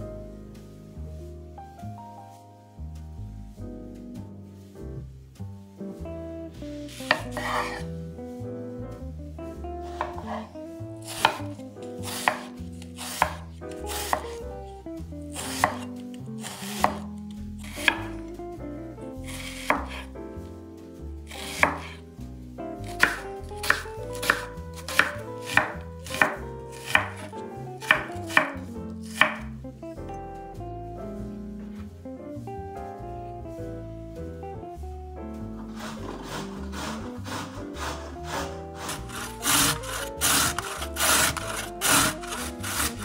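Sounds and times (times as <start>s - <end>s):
quiet background music: 0.0s - 43.0s
knife chopping on cutting board: 7.0s - 7.8s, 9.8s - 14.4s, 15.3s - 18.2s, 19.3s - 20.0s, 21.3s - 22.0s, 22.8s - 29.5s, 35.6s - 43.0s.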